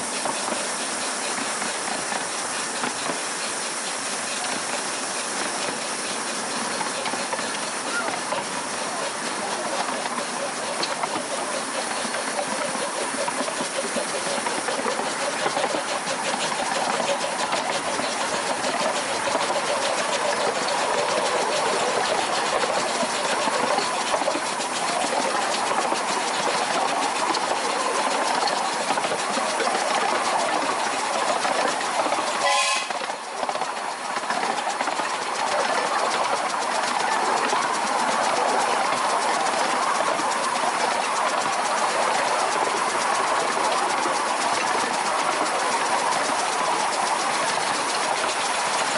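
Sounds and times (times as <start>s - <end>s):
steam locomotive exhaust: 0.0s - 48.9s
wheels clattering over rails: 0.0s - 48.9s
steam whistle: 32.4s - 33.1s.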